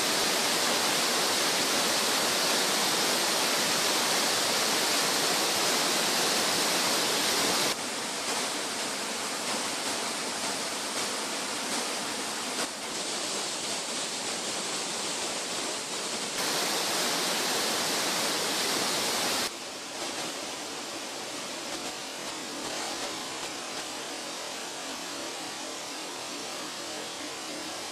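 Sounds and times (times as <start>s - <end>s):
waterfall rushing: 0.0s - 19.9s.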